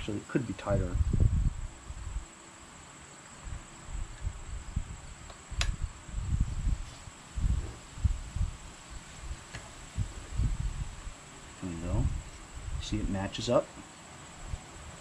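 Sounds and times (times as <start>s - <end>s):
sharp click: 5.2s - 5.8s.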